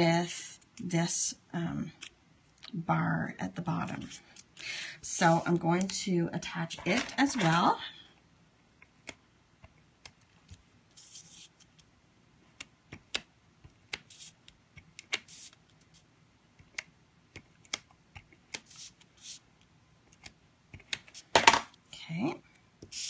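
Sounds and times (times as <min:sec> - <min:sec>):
adhesive applicator swiping card: 0:13.9 - 0:15.6.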